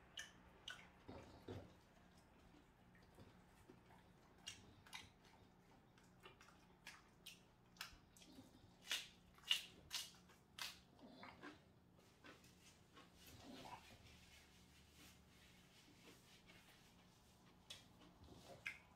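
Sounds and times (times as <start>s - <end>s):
crunching fried chicken: 6.4s - 13.2s.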